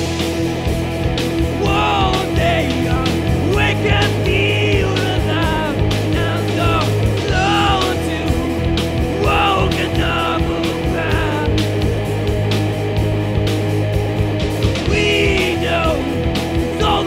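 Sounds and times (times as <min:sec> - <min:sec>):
drum hits: 0:00.0 - 0:17.0
rock band playing: 0:00.0 - 0:17.0
person singing: 0:01.5 - 0:11.7, 0:14.8 - 0:17.0.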